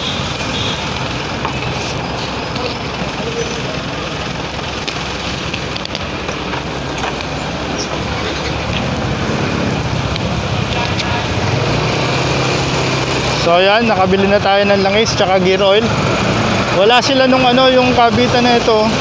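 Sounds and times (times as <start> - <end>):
motorcycle engines running: 0.0 - 19.0
street traffic noise: 0.0 - 19.0.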